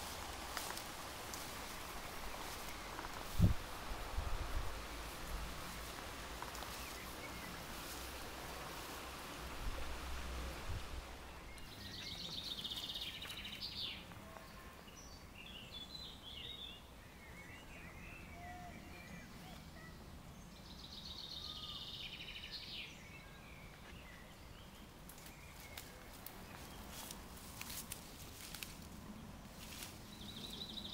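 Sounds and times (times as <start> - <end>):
wind rumble on microphone: 0.0 - 11.4
rustling: 0.0 - 13.6, 25.0 - 30.6
bird chirps: 11.4 - 26.9.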